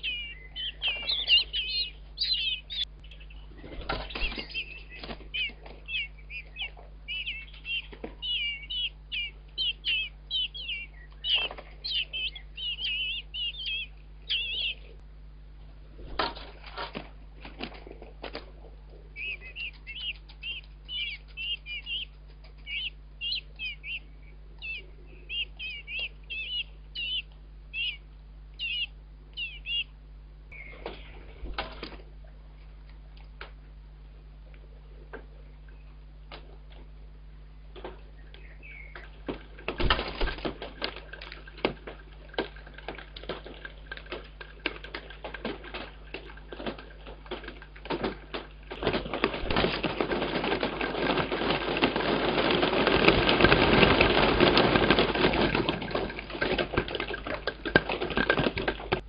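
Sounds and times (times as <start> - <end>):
nestlings begging calls: 0.0 - 15.0, 19.1 - 31.3, 38.1 - 40.6
bird rustling and wing flaps: 3.5 - 5.9, 16.0 - 18.7, 39.0 - 59.0.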